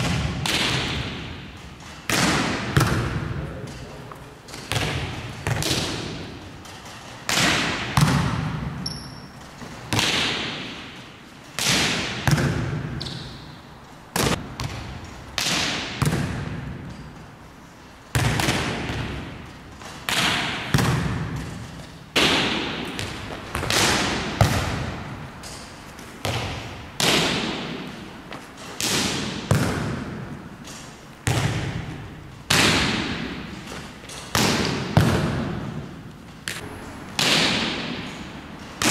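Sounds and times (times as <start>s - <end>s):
volleyball smacks echoing: 0.0s - 3.5s, 4.5s - 6.4s, 9.6s - 10.9s, 11.6s - 13.4s, 18.2s - 28.0s, 28.7s - 35.8s, 36.4s - 38.2s.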